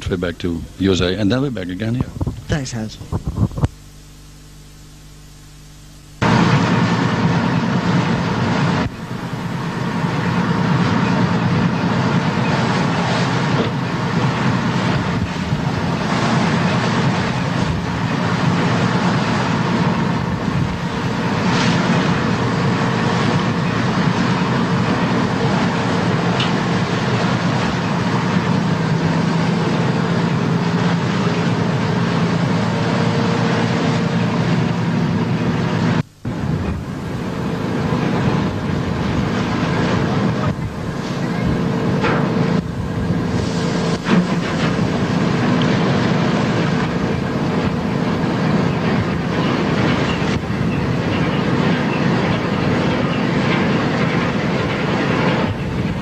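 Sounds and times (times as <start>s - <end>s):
boat engine drone: 0.0s - 56.0s
wind on microphone: 2.0s - 3.8s, 14.7s - 18.2s.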